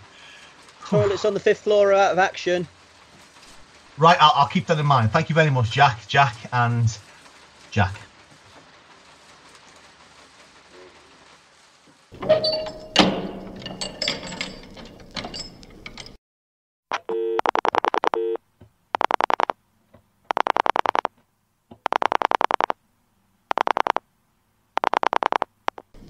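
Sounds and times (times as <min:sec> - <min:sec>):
knocks and clatter: 0:12.2 - 0:16.2
telephone ringing in buzzing bursts: 0:17.1 - 0:18.4, 0:19.0 - 0:19.5, 0:20.3 - 0:21.1, 0:21.9 - 0:22.7, 0:23.5 - 0:24.0, 0:24.8 - 0:25.8.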